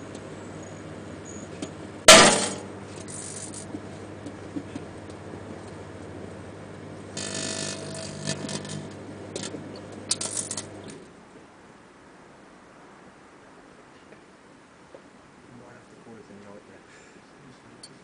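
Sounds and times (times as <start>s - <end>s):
buzzing crackle from arcing: 0.0s - 11.1s
microwave oven humming: 0.0s - 11.1s
light bulb cracking: 7.2s - 11.0s.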